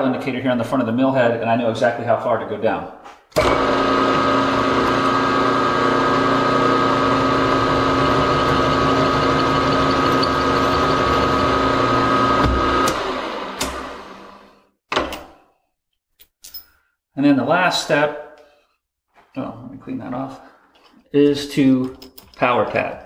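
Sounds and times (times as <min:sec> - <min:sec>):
milling machine gear whine: 0:06.1 - 0:14.4
tool cutting metal: 0:07.8 - 0:14.4.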